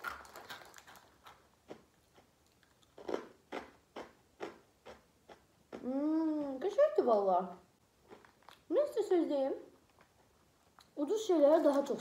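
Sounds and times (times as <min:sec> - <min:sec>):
person chewing crunchy snacks: 0:00.0 - 0:06.0, 0:08.0 - 0:08.7.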